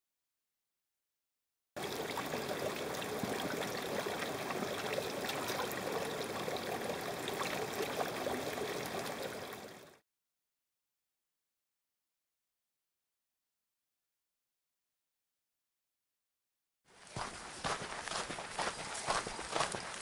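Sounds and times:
water trickling into rock pool: 1.8 - 10.0.

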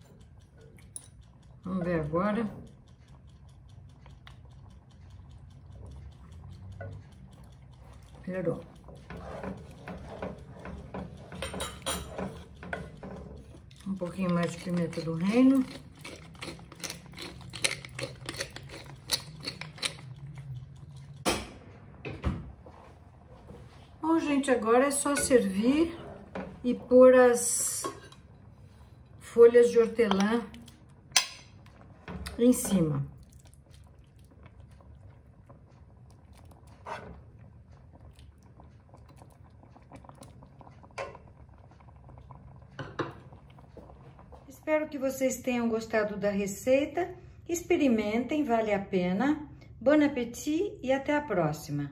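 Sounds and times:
soup wet slopping: 2.9 - 21.2, 30.0 - 44.5
pepper mill grinding: 13.6 - 20.3.

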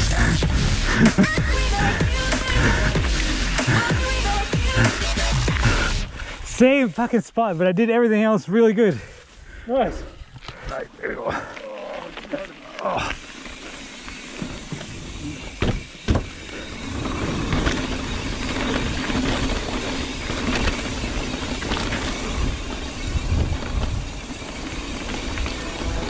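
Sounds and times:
bike tyres rumbling and rattling: 0.0 - 26.0
wind noise: 14.6 - 26.0.

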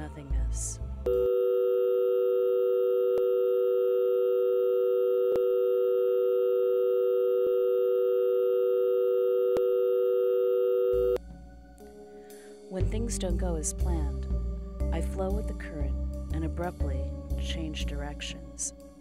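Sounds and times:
telephone dial tone: 1.2 - 11.2.

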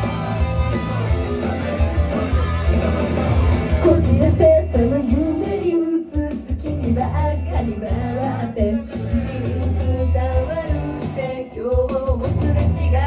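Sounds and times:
pop song with guitar and drums: 0.0 - 13.0
girl singing: 3.8 - 9.0.

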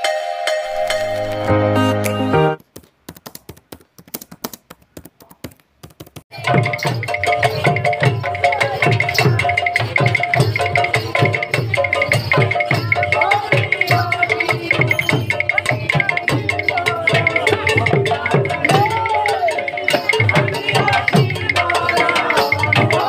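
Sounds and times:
logo jingle: 0.0 - 2.6
hand-played barrel drums: 2.7 - 23.0.

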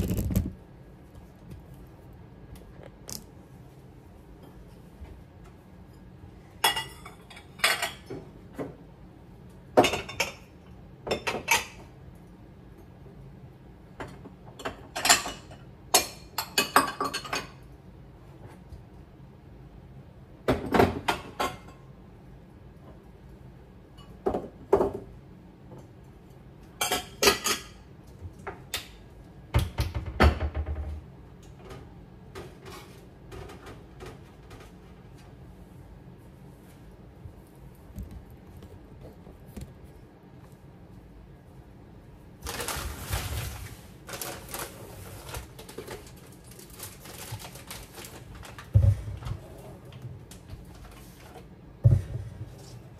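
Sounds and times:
dishes clinking and clattering: 6.0 - 8.8, 9.7 - 11.9, 14.0 - 17.7, 20.5 - 21.9, 26.8 - 27.9.

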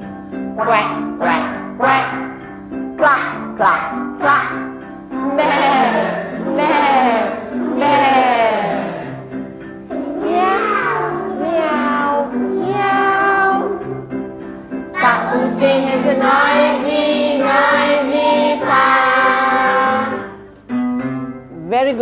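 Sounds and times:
jingling percussion: 0.0 - 22.0
group singing over backing track: 5.2 - 9.1, 15.0 - 20.3.

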